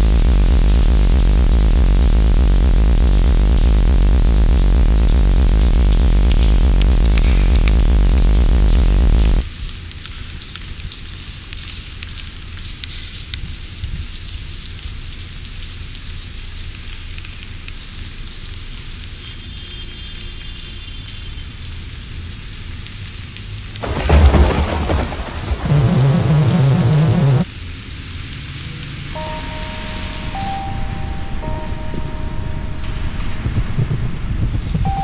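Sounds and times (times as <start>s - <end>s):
thunder clap with deep rumble: 0.0s - 9.4s, 23.8s - 27.4s
rain falling on pavement: 8.9s - 30.8s.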